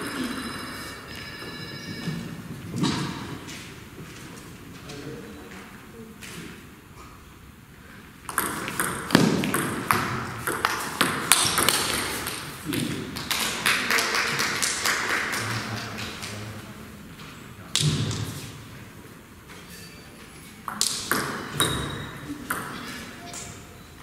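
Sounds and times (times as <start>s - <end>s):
voices in a hall: 2.2s - 8.3s, 9.1s - 24.0s
ping pong ball clicking and bouncing: 8.3s - 12.9s, 20.7s - 23.6s.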